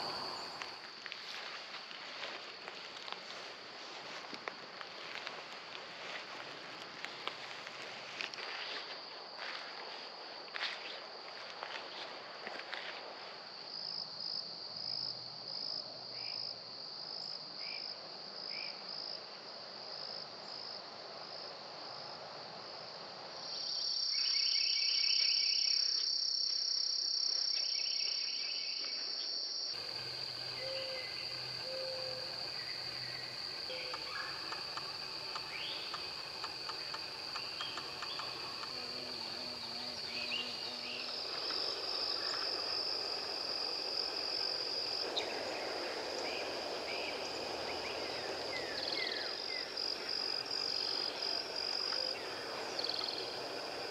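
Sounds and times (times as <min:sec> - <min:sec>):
insects trilling: 0:00.0 - 0:09.7, 0:23.5 - 0:53.9.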